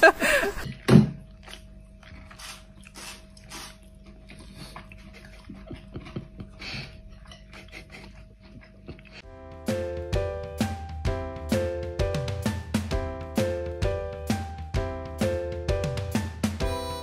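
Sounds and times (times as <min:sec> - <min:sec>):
person chewing: 0:00.7 - 0:09.3.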